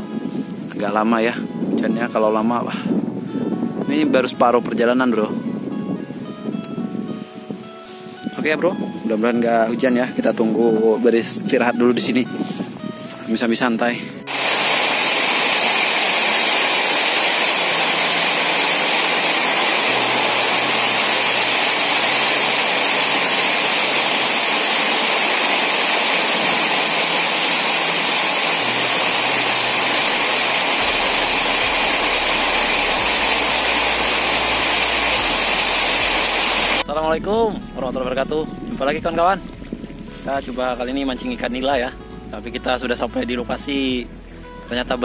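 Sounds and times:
heavy rain pouring: 14.3s - 36.9s.

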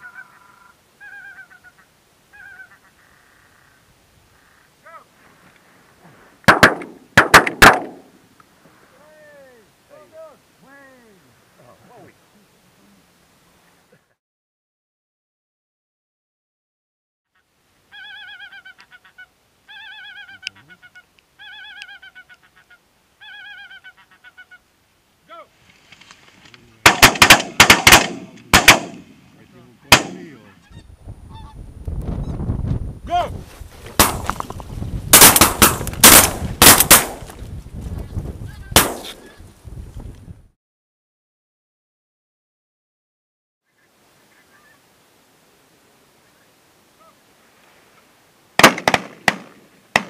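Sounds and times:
geese honking: 0.0s - 3.8s, 17.4s - 24.7s, 30.2s - 31.6s, 43.7s - 44.9s, 47.0s - 47.2s
shotgun shots: 6.5s - 8.1s, 26.8s - 29.3s, 29.9s - 30.4s, 34.0s - 34.4s, 35.1s - 37.4s, 38.8s - 39.3s, 48.6s - 50.0s
wind rumbling on microphone: 30.7s - 40.5s.

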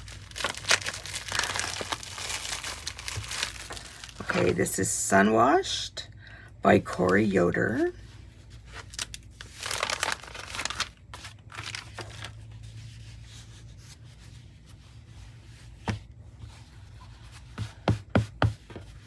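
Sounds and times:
fabric rustling and crinkling: 0.0s - 4.6s, 8.0s - 17.5s
hands patting fabric on table: 17.2s - 19.0s.

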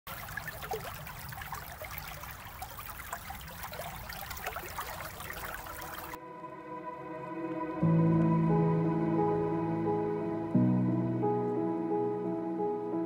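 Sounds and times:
stream flowing and gurgling: 0.1s - 6.2s
soft ambient music: 6.2s - 13.0s.

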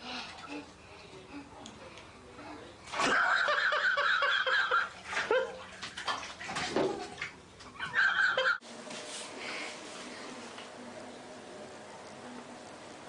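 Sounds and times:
water splashing in bathtub: 2.8s - 8.4s.

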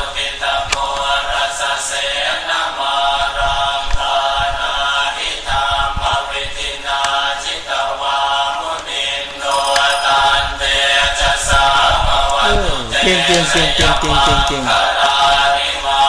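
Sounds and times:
toddler chanting sing-song: 12.4s - 14.8s.

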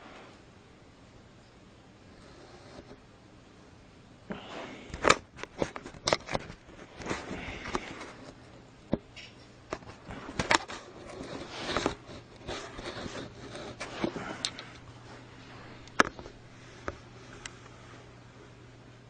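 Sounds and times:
clicks and knocks of objects: 4.9s - 14.9s.

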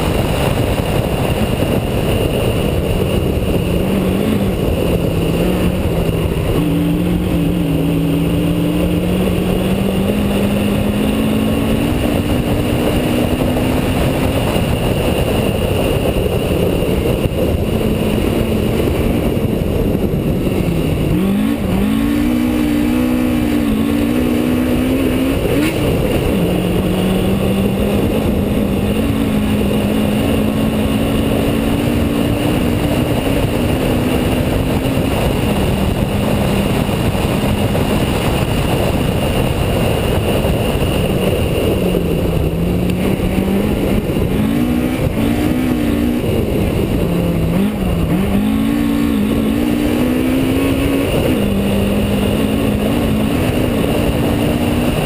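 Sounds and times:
rally car engine accelerating: 0.0s - 55.0s
road and wind noise: 0.0s - 55.0s.

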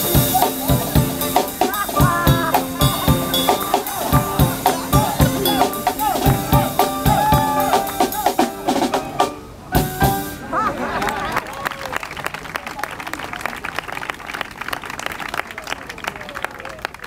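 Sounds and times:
music: 0.0s - 10.4s
drum kit playing a steady beat: 0.0s - 10.5s.

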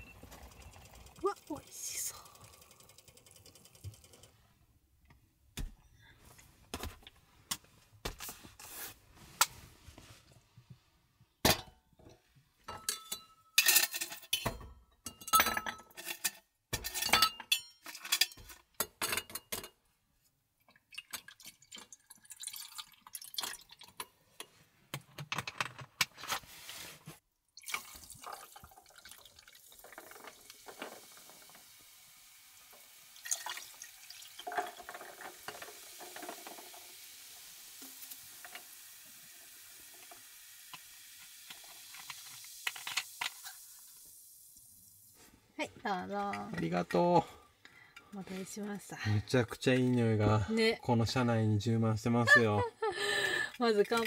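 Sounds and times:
dishes clinking and knocking: 11.4s - 19.8s, 34.4s - 36.9s
water trickling: 20.7s - 24.0s, 27.6s - 45.2s.

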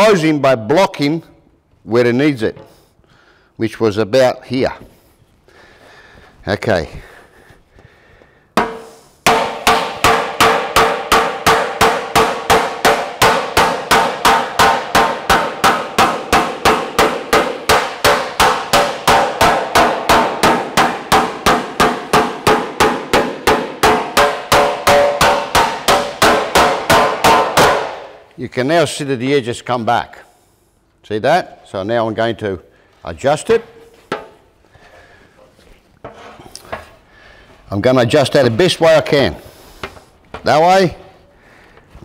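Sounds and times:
hammer ringing on metal panel: 8.6s - 28.1s.

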